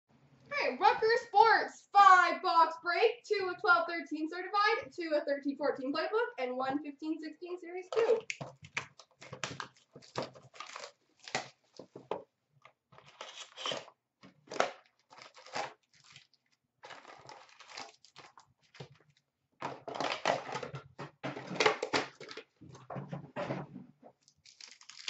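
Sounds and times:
wrapper crinkling and tearing: 8.9 - 11.8, 13.0 - 13.9, 14.5 - 19.2, 24.2 - 25.0.

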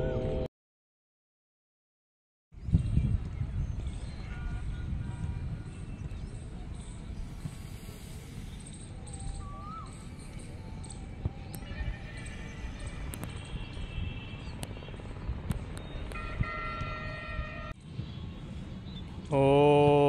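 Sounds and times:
wind on microphone: 2.6 - 19.3
faint bird chirps: 5.6 - 14.2
distant high-pitched horn tones: 10.0 - 15.2, 16.1 - 17.8.

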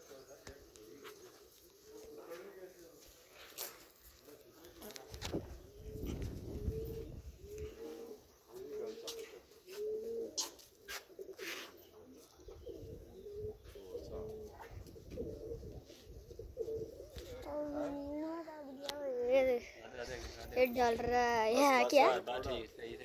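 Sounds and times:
pigeons cooing: 0.0 - 2.8, 4.5 - 19.6.

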